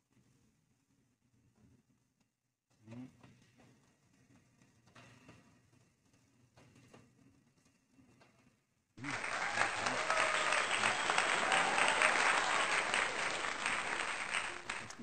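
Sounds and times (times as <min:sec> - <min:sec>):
crowd clapping: 0:09.0 - 0:15.0.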